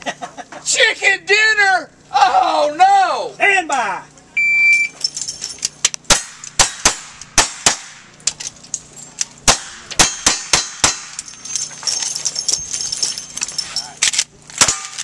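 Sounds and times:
steel targets clanging: 0:04.7 - 0:15.0.

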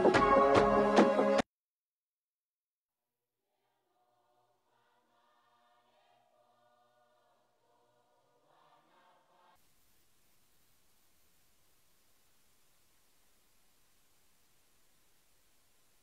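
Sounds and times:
faint choir singing: 0:00.0 - 0:01.4, 0:04.0 - 0:09.6
faint even hiss: 0:04.6 - 0:16.0.

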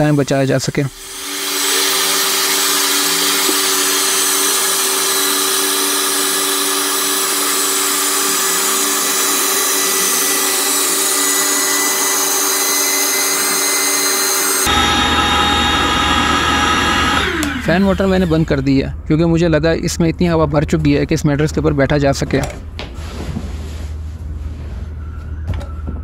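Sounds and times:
electric air pump whirring: 0:00.9 - 0:18.5.

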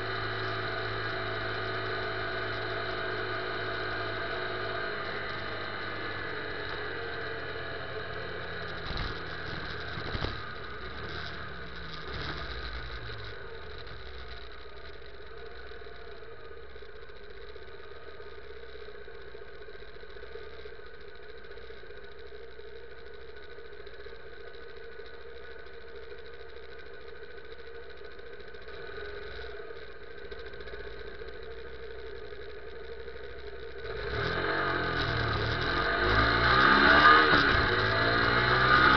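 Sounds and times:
motorcycle engine: 0:00.0 - 0:38.9.

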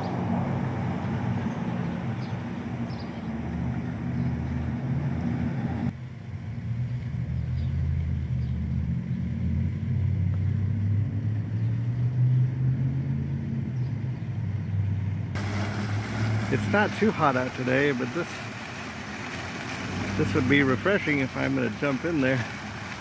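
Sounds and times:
low motor drone: 0:03.5 - 0:17.0.

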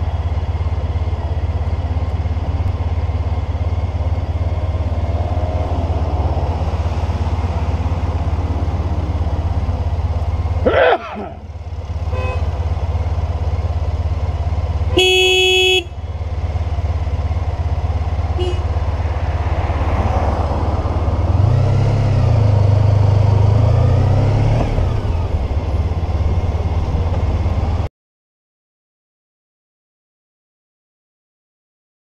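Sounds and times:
motorcycle engine idling: 0:00.0 - 0:05.5, 0:07.4 - 0:19.3, 0:24.9 - 0:27.9
faint horn toot: 0:12.0 - 0:12.6, 0:14.9 - 0:16.0, 0:18.4 - 0:18.8
vehicle horn: 0:12.0 - 0:12.7, 0:14.9 - 0:16.1, 0:18.3 - 0:18.9.

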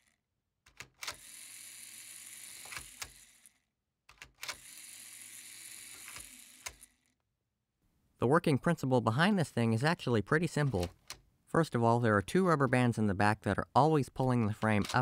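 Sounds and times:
small electric motor humming: 0:01.1 - 0:03.6, 0:04.6 - 0:07.1.

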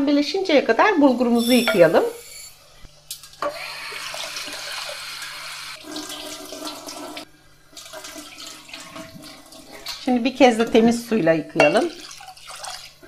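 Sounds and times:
tap water running into bowl: 0:03.4 - 0:10.9, 0:11.6 - 0:13.0.

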